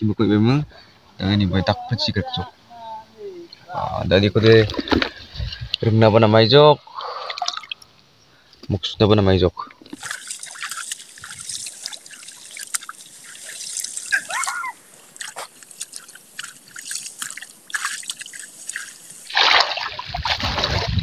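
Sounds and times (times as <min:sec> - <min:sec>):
muddy water splashing: 0:06.8 - 0:08.0, 0:09.7 - 0:21.0.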